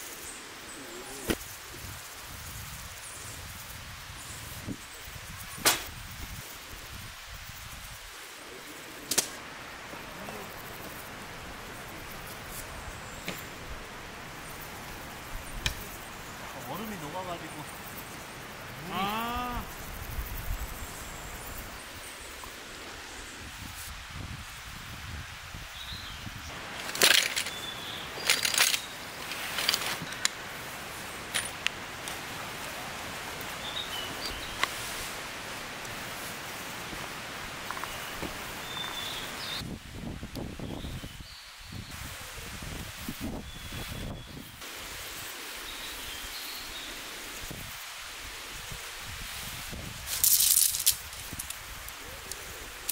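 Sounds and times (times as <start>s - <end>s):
steady outdoor hiss: 0.0s - 52.9s
camping gear handled: 26.5s - 30.4s, 31.2s - 32.3s
fabric and stuff sack rustling: 26.6s - 31.5s
frame poles clicking together: 26.7s - 30.4s, 50.1s - 51.6s.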